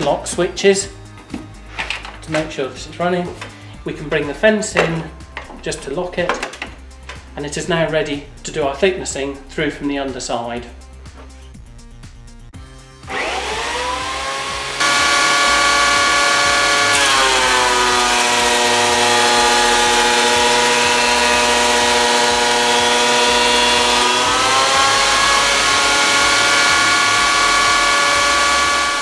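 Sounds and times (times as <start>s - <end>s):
planer motor whining: 13.1s - 29.0s.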